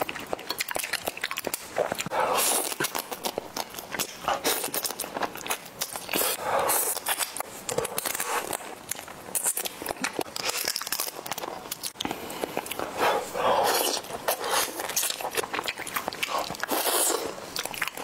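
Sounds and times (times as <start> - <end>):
lip and mouth clicks: 0.0 - 18.0
wet sucking and slurping: 12.8 - 15.6, 16.2 - 17.6.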